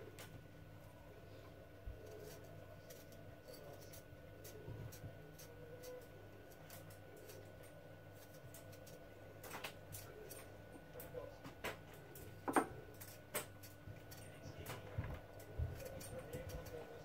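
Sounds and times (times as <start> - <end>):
knife scraping potato: 1.9 - 10.5, 12.9 - 17.0.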